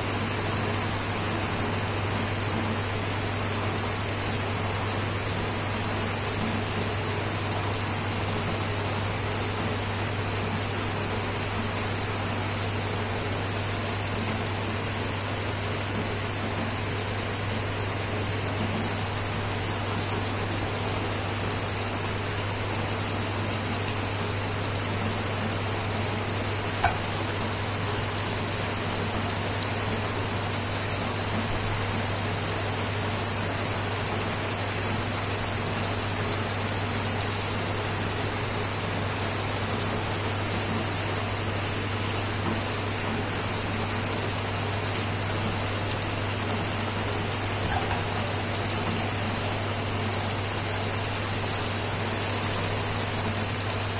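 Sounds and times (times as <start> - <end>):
curry bubbling and sizzling: 0.0 - 53.9
cooktop low hum: 11.8 - 30.5, 44.5 - 51.8.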